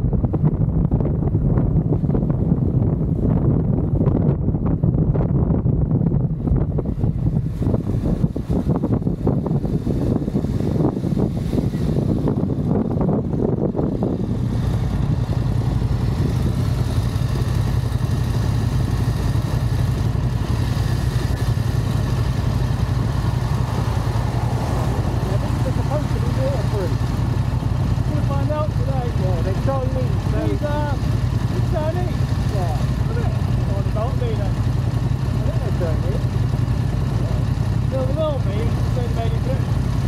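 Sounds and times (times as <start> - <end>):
motorcycle engine and road rumble: 0.0 - 40.0
wind buffeting microphone: 0.0 - 40.0.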